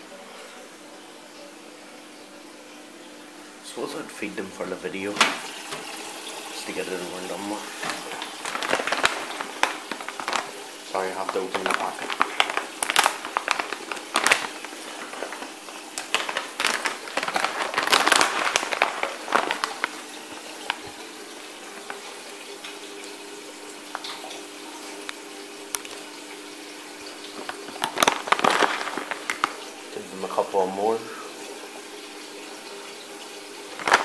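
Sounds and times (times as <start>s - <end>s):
aquarium water moving: 0.0s - 34.0s
packet crinkling and rustling: 5.0s - 21.0s, 21.6s - 22.2s, 27.1s - 30.4s, 33.7s - 34.0s.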